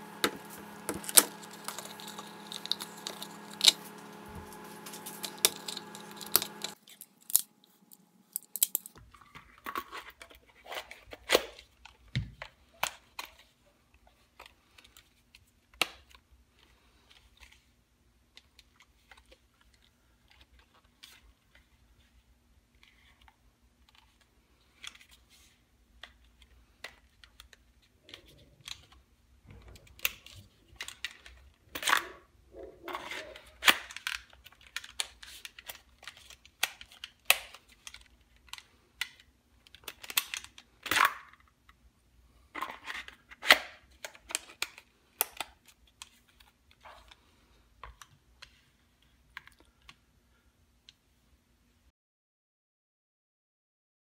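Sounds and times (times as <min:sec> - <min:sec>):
steady hum: 0:00.0 - 0:08.4.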